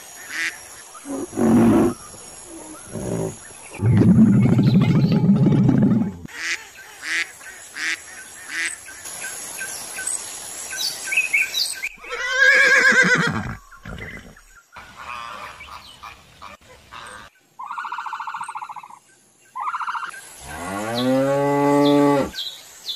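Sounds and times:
horse whinny: 0:01.1 - 0:02.0, 0:12.0 - 0:14.4.

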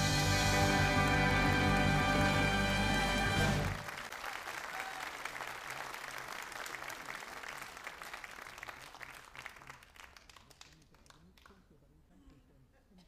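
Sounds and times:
band final chord: 0:00.0 - 0:03.8
audience applauding: 0:00.0 - 0:11.5.

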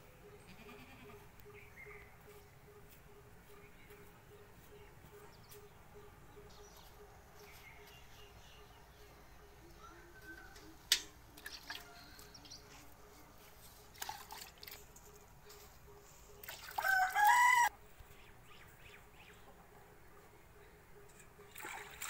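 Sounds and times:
rooster crowing: 0:16.8 - 0:17.7.

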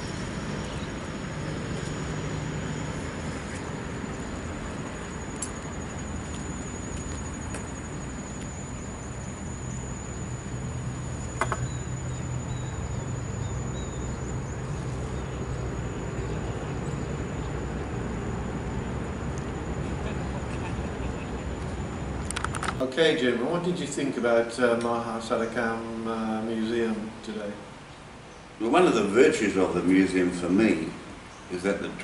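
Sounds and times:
high-pitched insect trill: 0:00.0 - 0:22.5.

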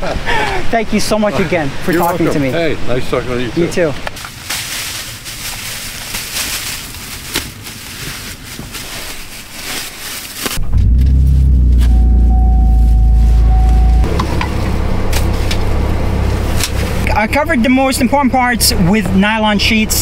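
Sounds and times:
plastic sheeting crinkling: 0:04.2 - 0:10.6
car engine rumbling: 0:10.6 - 0:20.0
steady high tone: 0:10.8 - 0:15.0.

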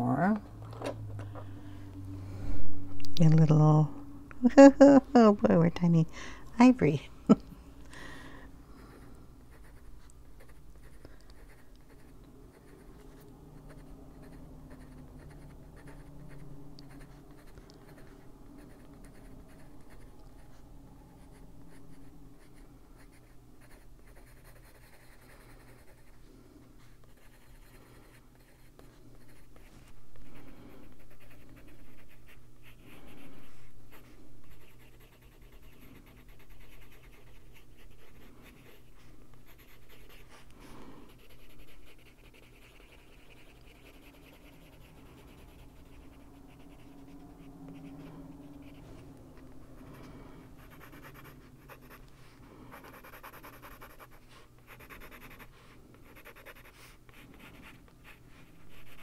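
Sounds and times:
pencil scratching on paper: 0:09.0 - 0:20.6, 0:21.2 - 0:26.2, 0:26.8 - 0:29.7, 0:30.8 - 0:40.5, 0:41.1 - 0:48.8, 0:50.6 - 0:52.0, 0:52.7 - 0:59.0.

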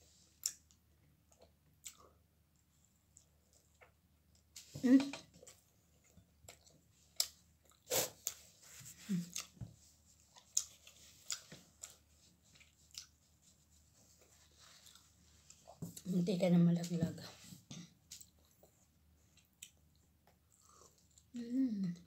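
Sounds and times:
person chewing with mouth clicks: 0:00.4 - 0:02.2, 0:10.2 - 0:13.2, 0:18.1 - 0:22.0
person humming: 0:21.4 - 0:22.0.

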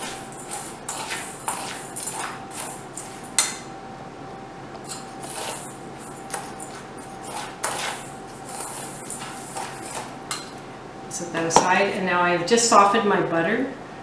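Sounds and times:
metal spoon scraping bowl: 0:00.0 - 0:03.6, 0:04.8 - 0:10.6.

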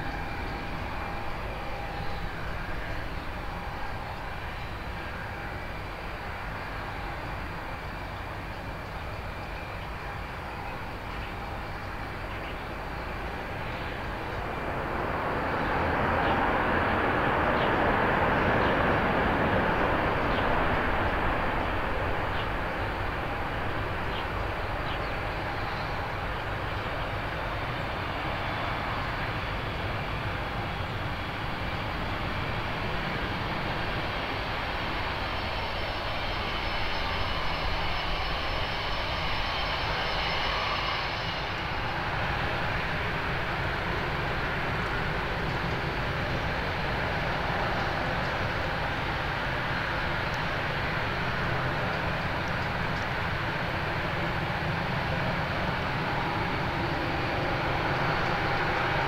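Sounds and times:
jet engine whine: 0:00.0 - 0:59.0
jet engines under reverse thrust: 0:00.0 - 0:59.0
faint high whistle: 0:35.8 - 0:42.2.

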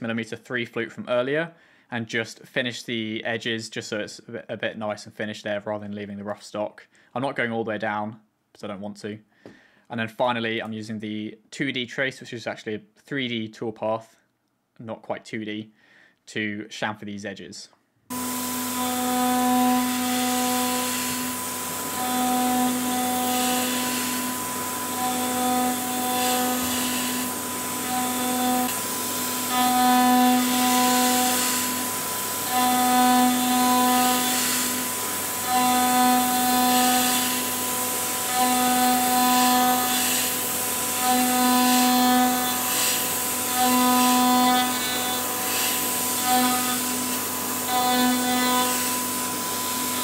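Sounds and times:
router spindle milling metal: 0:18.1 - 0:50.0.

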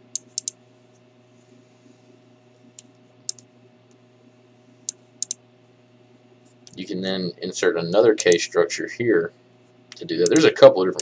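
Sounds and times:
faint steady hum: 0:00.0 - 0:11.0
computer mouse clicks: 0:00.1 - 0:00.6, 0:02.8 - 0:03.5, 0:04.9 - 0:05.4.

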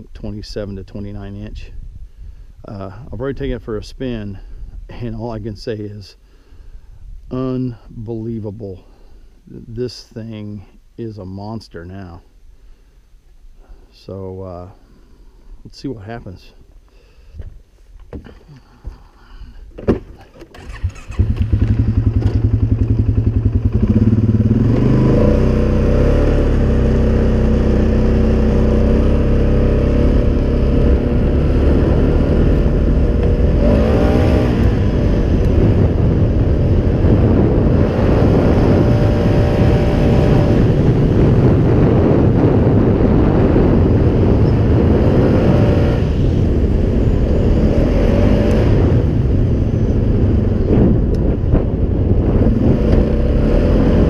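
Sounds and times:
atv engine revving under load: 0:20.2 - 0:54.0.

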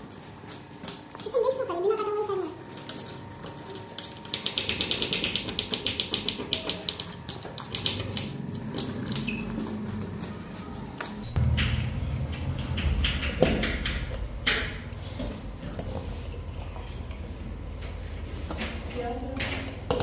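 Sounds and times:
low handling rumble: 0:11.2 - 0:18.3.

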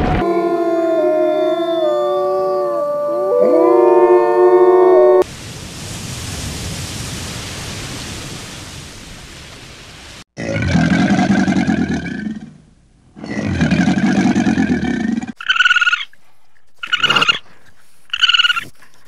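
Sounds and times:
wolves howling: 0:00.2 - 0:05.2.

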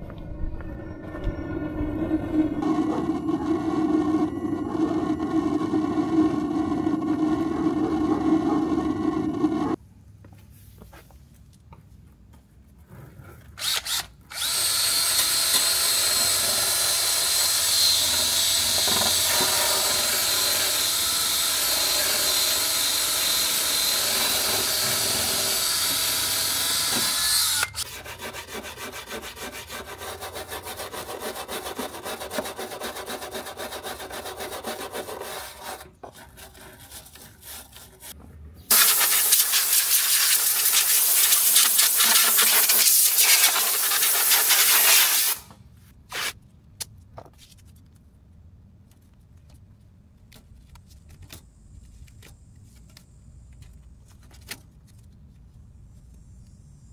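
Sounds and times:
drill wire brush grinding metal: 0:13.6 - 0:35.8, 0:38.7 - 0:45.4
compressed air hissing: 0:38.7 - 0:45.4.

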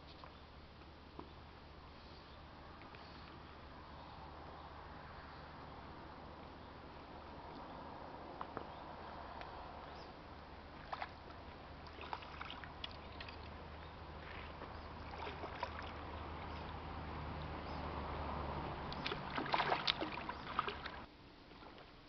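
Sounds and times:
steady low hum: 0:00.0 - 0:22.0
fish splashing in water: 0:10.7 - 0:21.8.

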